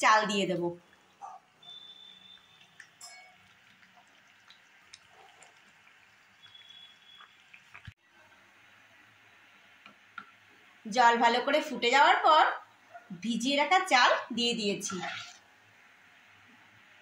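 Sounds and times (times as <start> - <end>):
pots bubbling and hissing: 0.0 - 17.0
faint high steady tone: 1.2 - 3.4.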